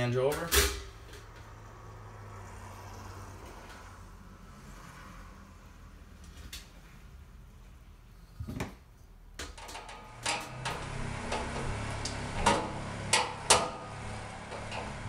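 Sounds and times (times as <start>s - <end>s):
sheet metal clanks: 9.4s - 15.0s.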